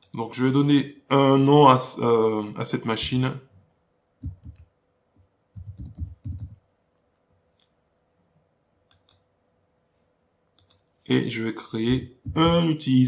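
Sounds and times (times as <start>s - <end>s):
computer keyboard typing: 4.2s - 4.6s, 5.6s - 6.6s.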